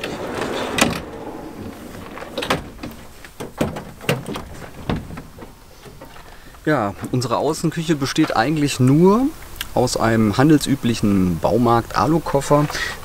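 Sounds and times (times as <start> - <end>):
metal box sliding and scraping: 0.0 - 3.4.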